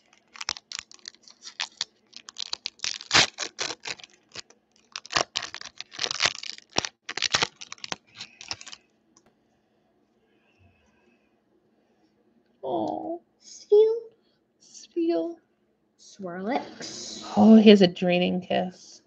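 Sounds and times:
foil wrapper crinkling and tearing: 0.0s - 8.8s.

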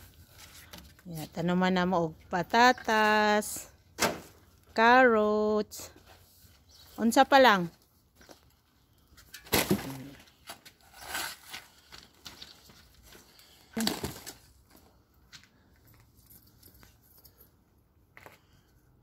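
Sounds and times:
soil scraped with trowel and shovel: 10.8s - 11.8s.

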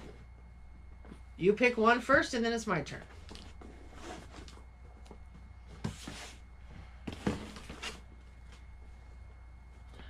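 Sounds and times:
cardboard boxes knocking and scuffing: 5.6s - 6.4s, 7.1s - 8.0s.

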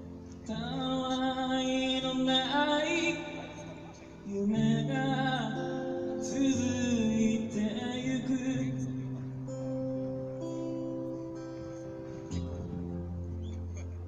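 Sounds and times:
acoustic guitar: 0.0s - 14.0s
man singing: 0.4s - 9.7s.

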